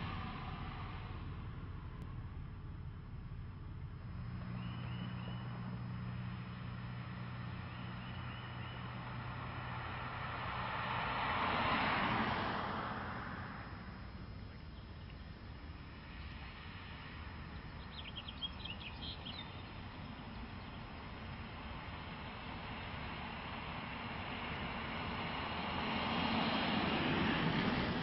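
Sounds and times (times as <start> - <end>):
car driving past: 0.0 - 28.0
bird chirping: 4.4 - 5.8, 7.6 - 9.0, 17.4 - 21.3.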